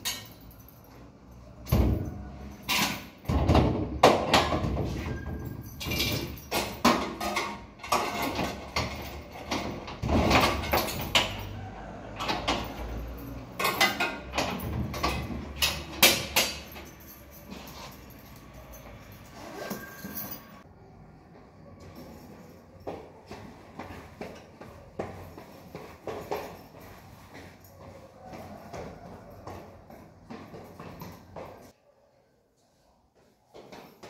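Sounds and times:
objects knocking and clattering: 0:00.0 - 0:20.6.

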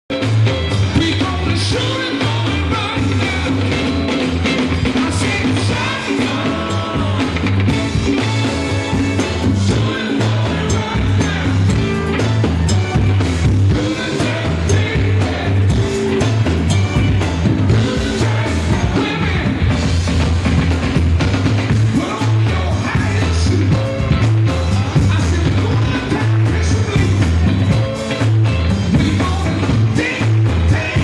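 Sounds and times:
drum kit: 0:00.1 - 0:31.0
electric guitar: 0:00.1 - 0:31.0
man singing into a microphone: 0:00.8 - 0:08.2, 0:08.8 - 0:12.3, 0:13.6 - 0:16.2, 0:17.7 - 0:19.8, 0:21.8 - 0:27.5, 0:28.9 - 0:31.0.

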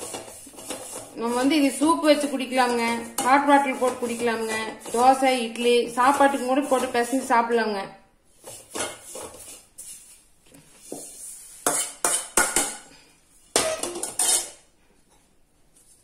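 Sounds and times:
metal ladle scraping a bowl: 0:00.0 - 0:07.3, 0:10.9 - 0:12.7, 0:13.5 - 0:14.6.

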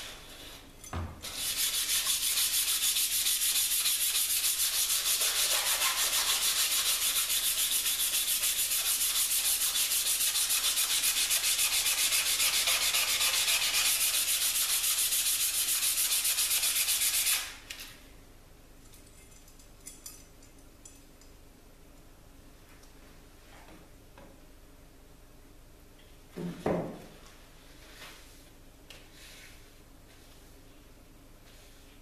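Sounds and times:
sandpaper rubbing on steel blade: 0:01.3 - 0:17.6.

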